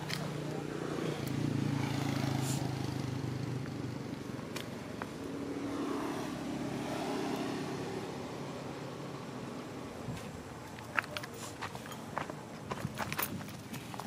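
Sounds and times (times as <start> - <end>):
vehicle engine low hum: 0.0 - 14.0.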